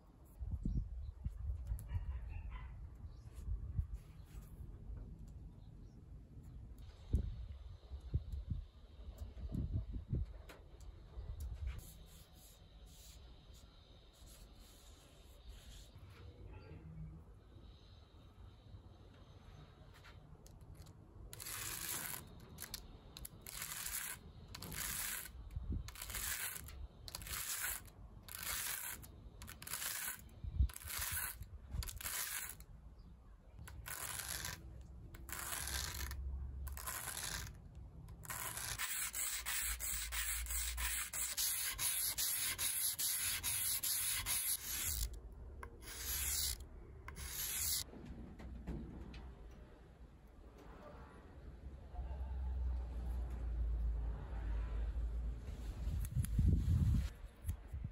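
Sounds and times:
metal tag rubbing on sandpaper: 20.8 - 32.6, 33.6 - 37.6, 38.2 - 47.9.

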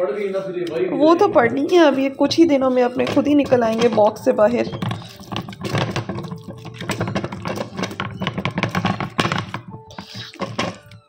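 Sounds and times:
mash squelching: 1.0 - 11.0
masher knocking against pot: 2.3 - 11.0.

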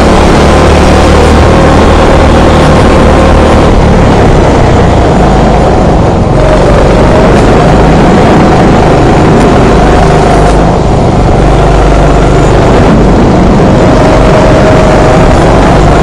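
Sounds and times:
go-kart engine running: 0.0 - 16.0.

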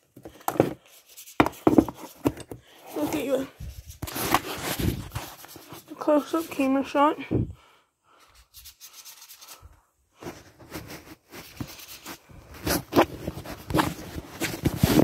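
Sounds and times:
phone microphone rubbing on fabric: 2.9 - 6.8.

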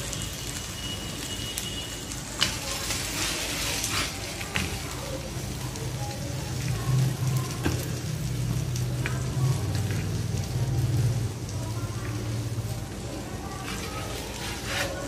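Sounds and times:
fish sizzling on a griddle: 0.0 - 15.0
wooden spatula scraping pan: 2.8 - 4.7, 13.6 - 15.0.

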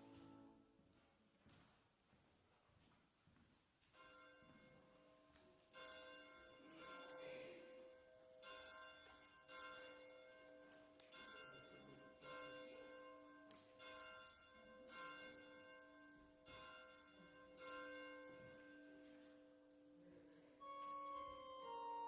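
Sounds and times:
church bell tolling faintly: 5.7 - 22.0.

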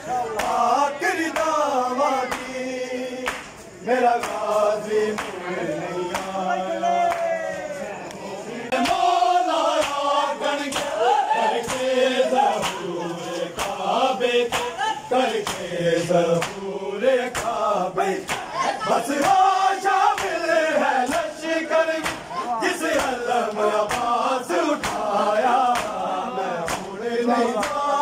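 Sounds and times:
men chanting in unison: 0.0 - 28.0
hands slapping chests: 3.2 - 3.6, 9.8 - 10.0, 12.5 - 12.9, 13.6 - 13.8, 22.0 - 22.3, 23.0 - 24.1, 24.8 - 25.1, 25.7 - 26.0, 26.7 - 27.0.

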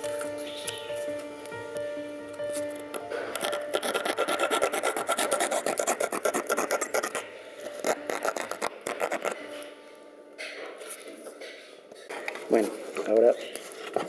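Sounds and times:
hand tool rasping wood: 3.3 - 7.2, 7.8 - 9.4.

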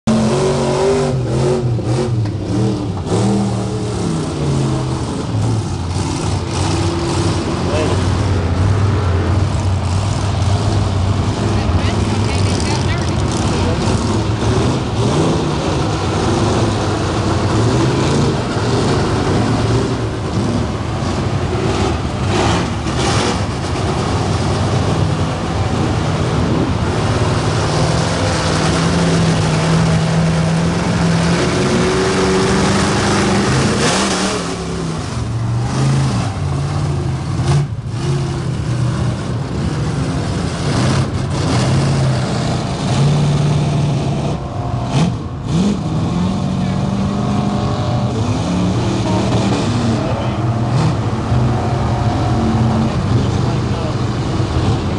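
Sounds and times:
truck engines revving: 0.0 - 54.9.

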